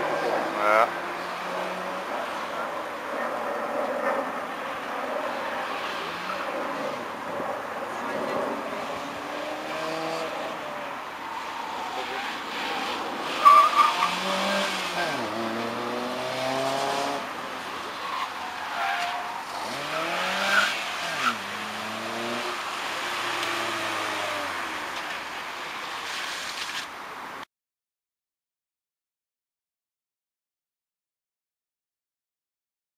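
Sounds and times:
car engine revving: 8.8 - 10.8, 11.4 - 17.4, 19.2 - 25.1.

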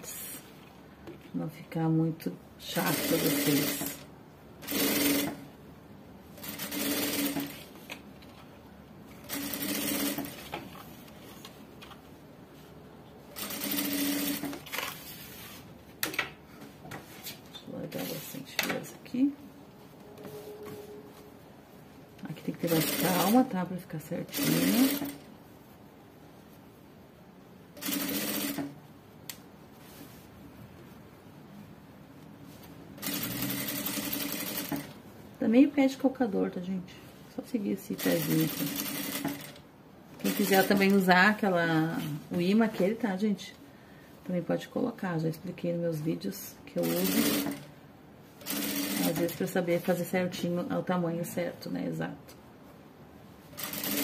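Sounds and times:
industrial sewing machine stitching: 4.6 - 5.4, 33.0 - 34.9, 46.8 - 47.7
sewing machine running: 4.6 - 5.4, 9.2 - 10.4, 13.4 - 14.5, 27.8 - 28.7, 33.0 - 34.9, 38.1 - 39.6, 46.8 - 47.7, 48.4 - 49.2, 53.6 - 54.0.

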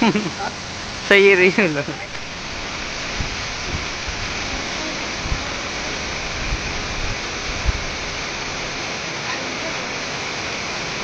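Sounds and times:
waterfall rushing: 0.0 - 11.0
low thumps on microphone: 3.2 - 4.2.

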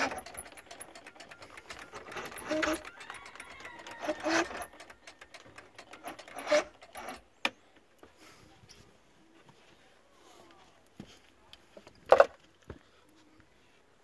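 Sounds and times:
starter motor clicking and rattling: 0.0 - 7.6.

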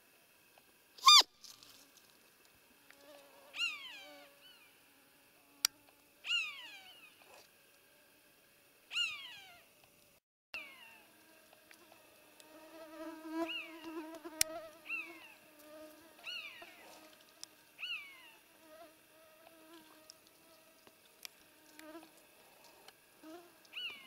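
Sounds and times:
roe deer squeaky calls: 1.0 - 1.3, 3.6 - 4.2, 6.3 - 7.1, 8.9 - 9.6.

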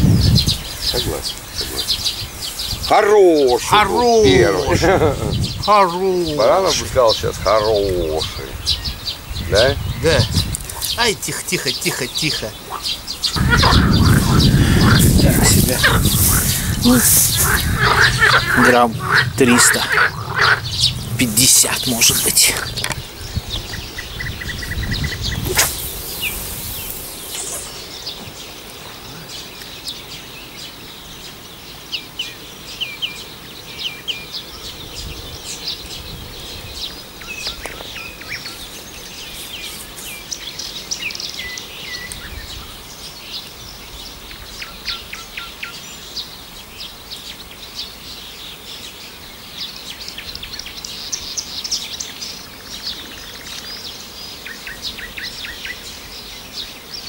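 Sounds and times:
songbirds chirping: 0.0 - 57.0
rushing whoosh: 13.4 - 23.4.

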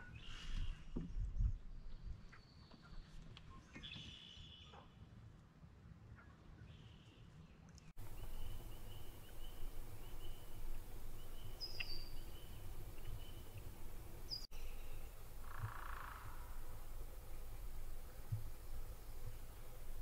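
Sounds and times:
bird calls: 6.2 - 20.0
frogs peeping: 8.0 - 16.9
low steady rumble: 8.0 - 20.0.

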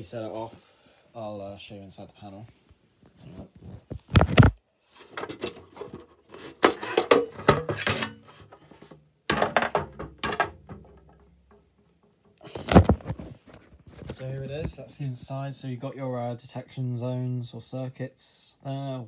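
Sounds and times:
plastic cover knocks and scraping: 3.6 - 14.8.

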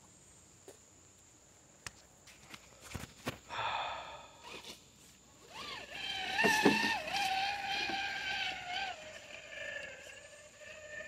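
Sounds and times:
toy truck electric motor whining: 5.4 - 11.0.

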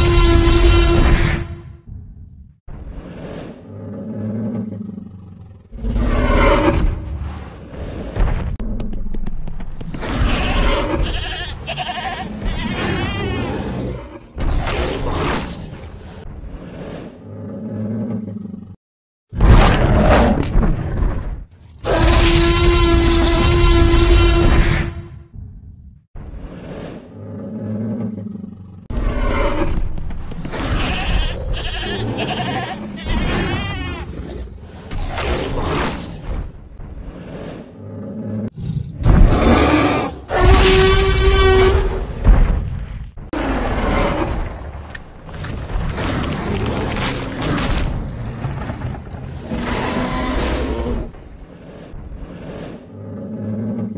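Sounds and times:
goat bleating: 11.0 - 13.3, 30.8 - 34.0
low growl: 26.8 - 29.3, 52.0 - 53.9.

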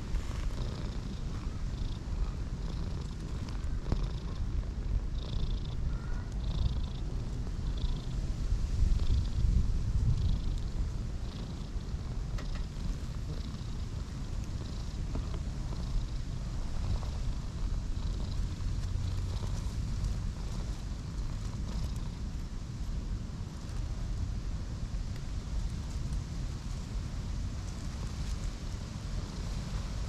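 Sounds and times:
cat purring: 0.0 - 24.2, 27.7 - 30.0.

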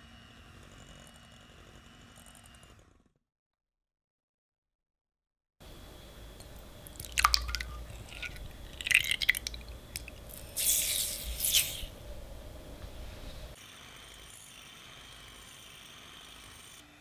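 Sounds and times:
sugar pouring into bowl: 6.9 - 11.9.

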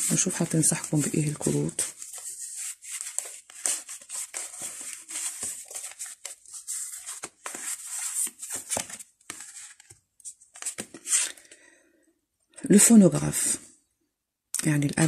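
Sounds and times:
cards being shuffled: 0.0 - 11.4.

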